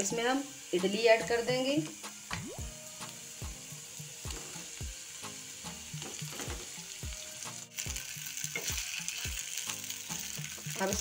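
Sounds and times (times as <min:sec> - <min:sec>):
background music with steady beat: 0:00.0 - 0:11.0
hot oil sizzling: 0:00.0 - 0:11.0.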